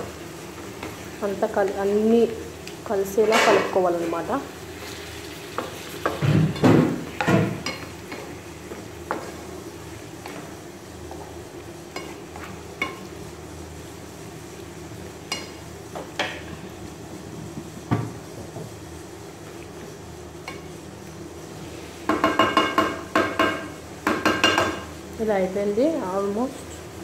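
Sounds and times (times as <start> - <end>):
meat sizzling: 0.0 - 17.3.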